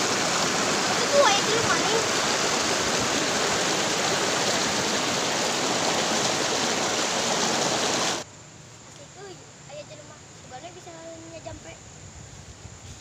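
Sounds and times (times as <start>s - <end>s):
stream rushing over rocks: 0.0s - 8.2s.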